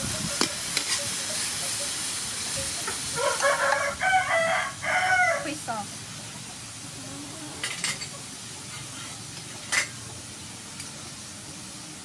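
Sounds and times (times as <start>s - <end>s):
beef sizzling in a wok: 0.0s - 12.0s.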